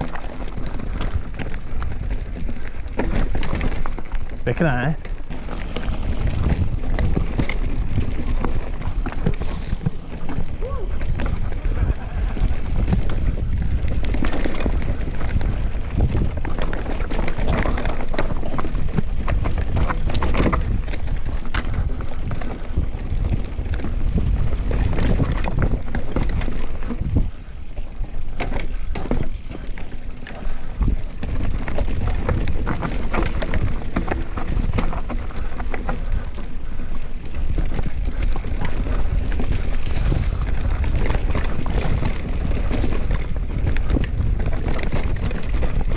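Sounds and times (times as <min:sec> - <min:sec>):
bike rattling and knocking: 0:00.0 - 0:45.9
tyres on loose ground: 0:00.0 - 0:45.9
wind buffeting microphone: 0:00.0 - 0:45.9.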